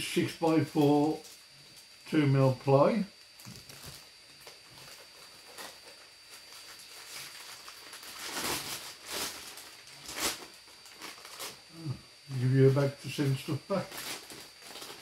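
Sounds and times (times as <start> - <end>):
plastic bag crinkling: 3.4 - 11.7, 13.7 - 15.0.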